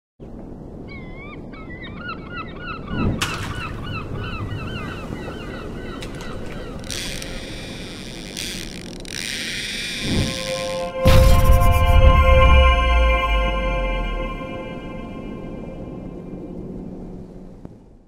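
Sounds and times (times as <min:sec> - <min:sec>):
gulls calling: 0:00.9 - 0:11.1
high hissing buzz: 0:06.9 - 0:15.3
low whoosh: 0:10.0 - 0:16.5
low rush of noise: 0:10.1 - 0:18.0.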